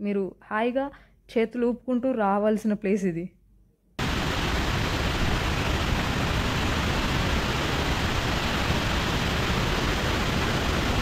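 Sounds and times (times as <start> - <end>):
waterfall rushing: 4.0 - 11.0.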